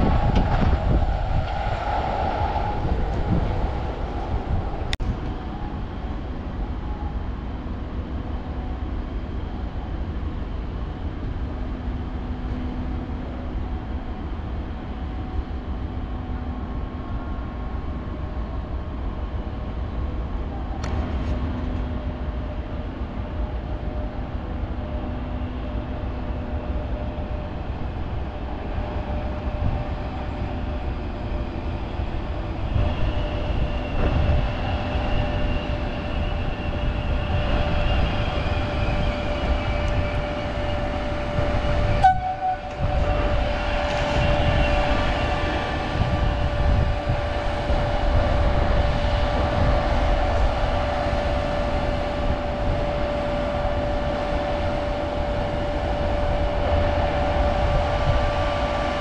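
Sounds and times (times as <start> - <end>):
train rumbling on rails: 0.0 - 59.0
higher whine: 25.2 - 59.0.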